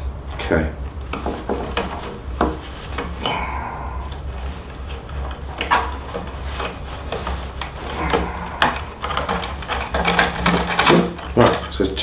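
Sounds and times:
rawhide lace scraping and rubbing: 4.5s - 11.8s.

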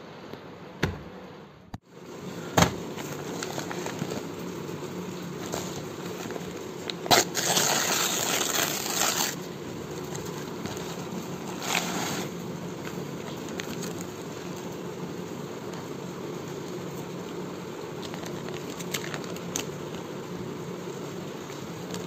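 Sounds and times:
paper rustle: 2.8s - 12.3s
paper tearing and crinkling: 5.4s - 12.3s, 18.0s - 19.8s.

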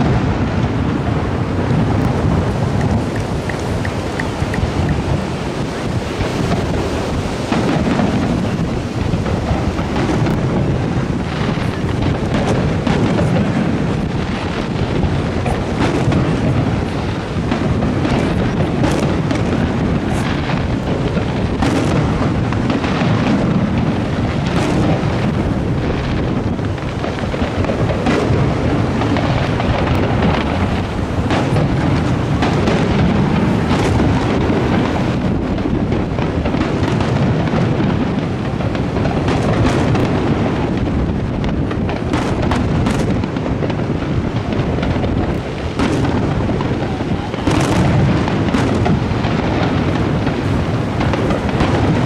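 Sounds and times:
firework booms: 0.0s - 52.0s
firework crackle: 0.0s - 52.0s.

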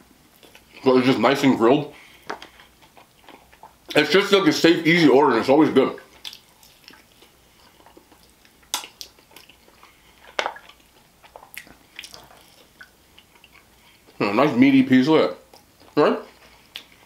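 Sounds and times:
chewing and biting: 0.3s - 0.8s, 2.2s - 4.0s, 6.0s - 14.2s, 15.4s - 17.0s.

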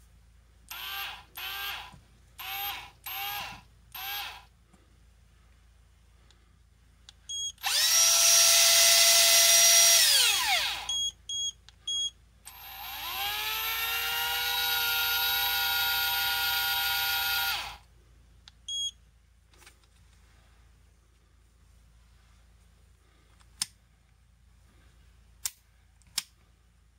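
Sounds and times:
electric reel motor whine: 7.6s - 10.9s, 12.5s - 17.8s
short electronic beeps: 10.9s - 12.2s, 18.7s - 19.0s.

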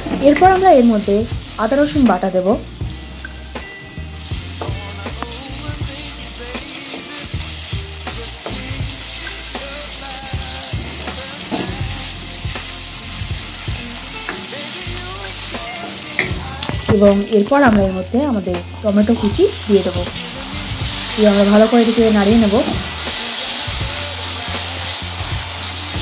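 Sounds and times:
onions sizzling in hot oil: 0.0s - 26.0s.

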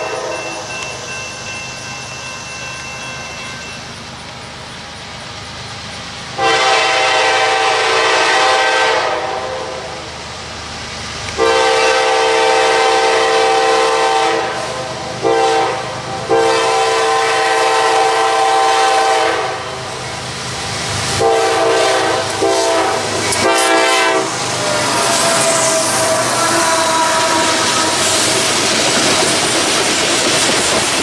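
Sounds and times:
train air horn blasts: 0.0s - 0.7s, 6.4s - 10.1s, 11.4s - 19.9s, 21.2s - 28.4s
train rumbling on rails: 0.0s - 31.0s.

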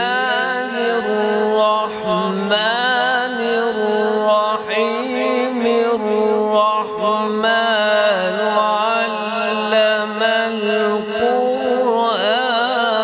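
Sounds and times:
man chanting melodically: 0.0s - 13.0s.

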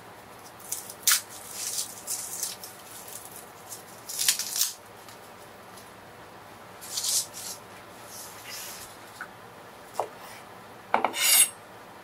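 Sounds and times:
garlic skin crackling: 0.4s - 5.2s.

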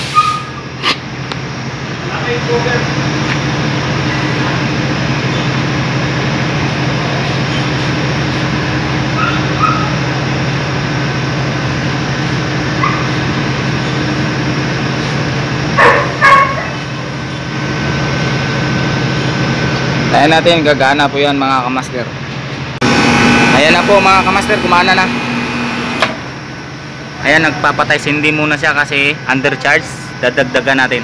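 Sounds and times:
dog barking: 9.2s - 10.0s, 12.8s - 13.2s, 15.8s - 16.9s
steady low hum: 21.5s - 31.0s.

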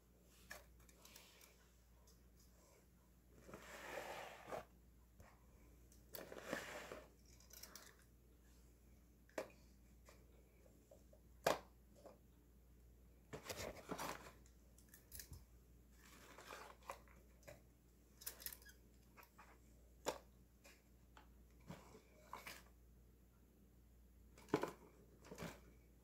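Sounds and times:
paper and cardboard rustling: 13.4s - 14.4s, 16.0s - 17.2s.

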